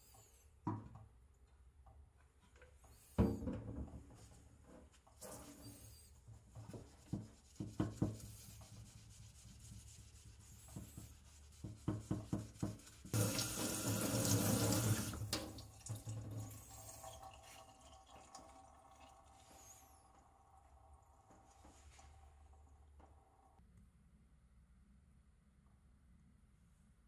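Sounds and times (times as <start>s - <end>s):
tap water running: 11.6s - 23.1s.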